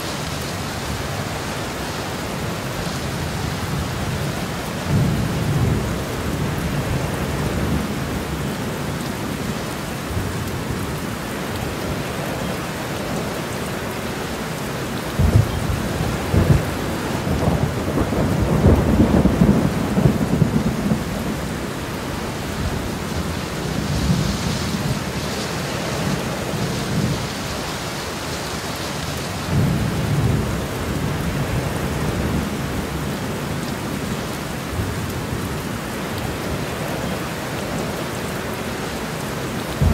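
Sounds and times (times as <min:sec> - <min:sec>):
steady rain: 0:00.0 - 0:39.9
rolling thunder: 0:15.2 - 0:21.6.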